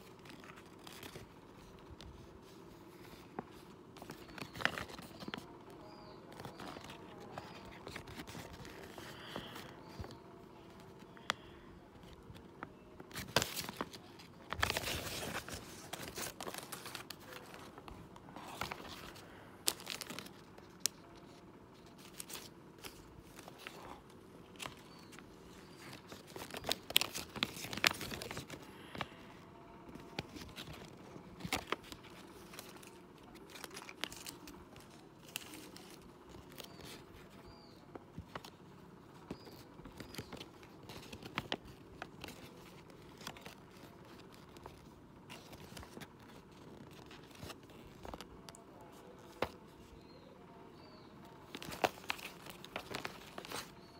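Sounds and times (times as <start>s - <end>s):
paper rustling and crinkling: 0.0s - 50.2s, 50.8s - 53.9s.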